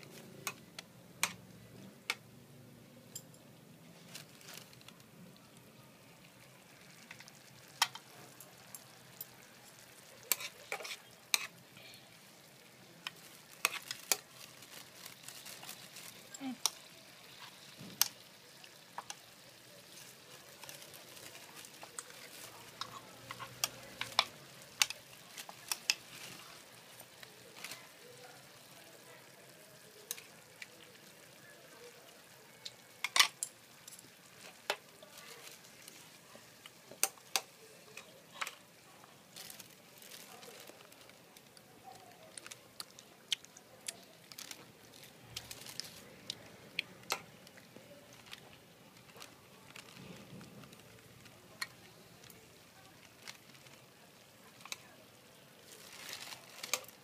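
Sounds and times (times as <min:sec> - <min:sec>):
meat and onions sizzling in oil: 0:00.0 - 0:57.0
oil popping and spattering: 0:06.3 - 0:11.9, 0:12.9 - 0:27.9.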